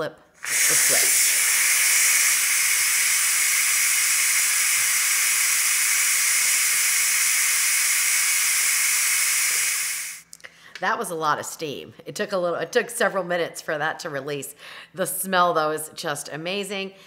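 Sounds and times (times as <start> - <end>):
pressure cooker venting steam: 0.4 - 10.2.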